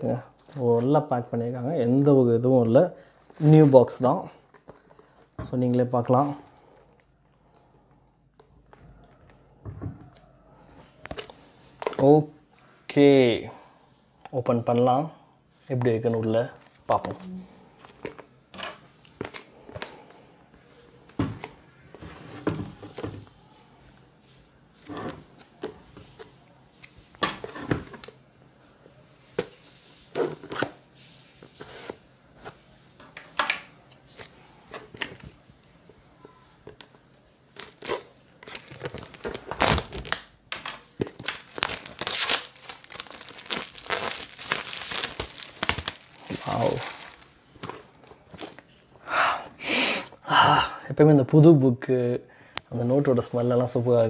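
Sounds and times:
plastic shrink-wrap rustling: 0:37.6 - 0:40.2, 0:41.2 - 0:48.6.

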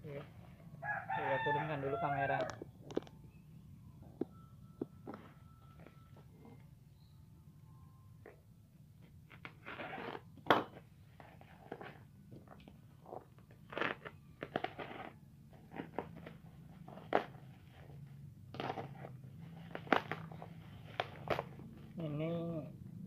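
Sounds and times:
knife slitting packing tape: 0:13.7 - 0:16.3, 0:18.5 - 0:21.5.

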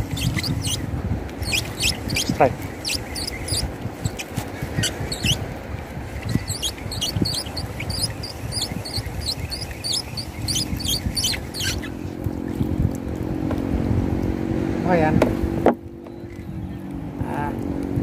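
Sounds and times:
fishing reel squeaky chirps: 0:00.0 - 0:05.5, 0:06.1 - 0:12.0
boat motor running: 0:00.0 - 0:18.0.

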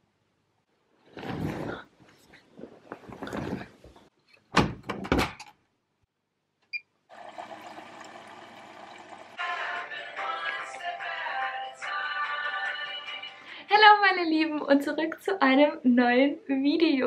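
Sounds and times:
washing machine running: 0:07.1 - 0:09.4.

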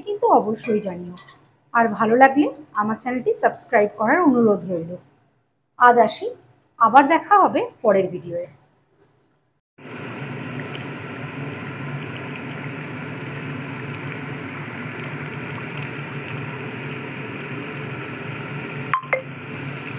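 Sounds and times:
curry bubbling: 0:09.8 - 0:19.9.

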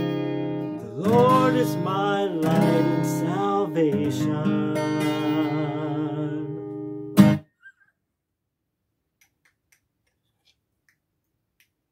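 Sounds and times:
acoustic guitar chord ringing: 0:00.0 - 0:07.4
acoustic guitar strum: 0:00.0 - 0:07.4.

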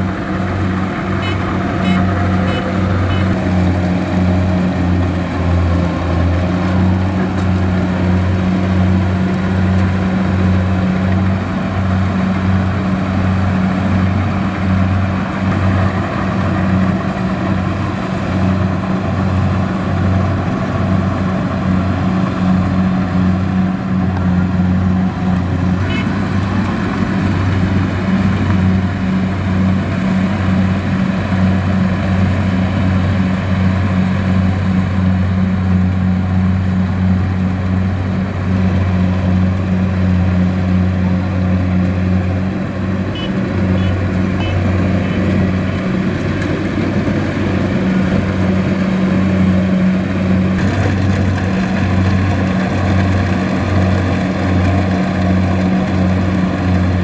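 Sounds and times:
combine harvester engine droning: 0:00.0 - 0:57.0.

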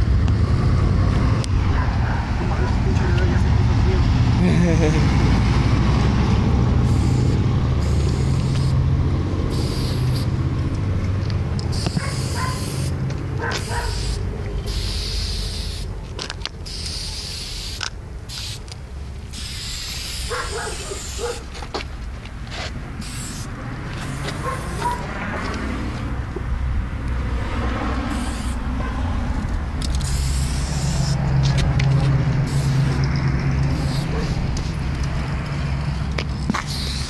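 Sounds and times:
traffic rumble: 0:00.0 - 0:37.0
aerosol spray can hissing: 0:06.8 - 0:08.8, 0:09.5 - 0:10.4, 0:11.7 - 0:13.0, 0:13.6 - 0:15.9, 0:16.6 - 0:18.7, 0:19.3 - 0:21.5, 0:23.0 - 0:25.0, 0:28.1 - 0:28.6, 0:29.9 - 0:31.3, 0:32.4 - 0:33.1, 0:33.7 - 0:34.4, 0:36.5 - 0:37.0.

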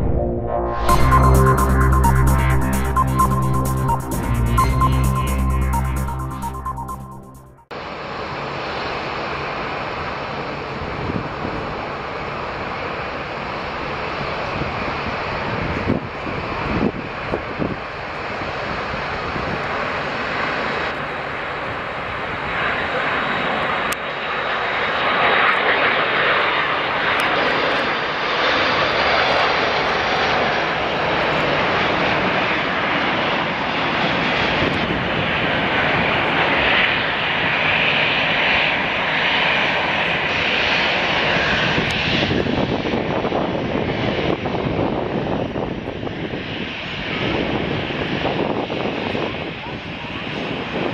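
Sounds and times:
jet airliner engines roaring: 0:07.8 - 0:50.9.

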